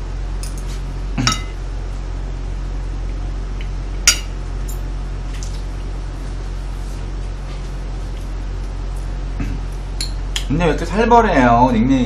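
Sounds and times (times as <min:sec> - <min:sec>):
steady low hum: 0:00.0 - 0:12.0
cutlery clinking on ceramic plate: 0:01.2 - 0:01.6.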